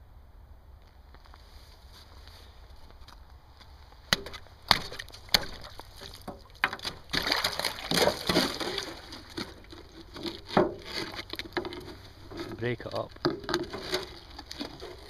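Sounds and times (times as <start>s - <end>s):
ice cracking and splashing: 4.1s - 11.9s, 12.5s - 15.0s
pole knocking on ice: 4.1s - 12.6s.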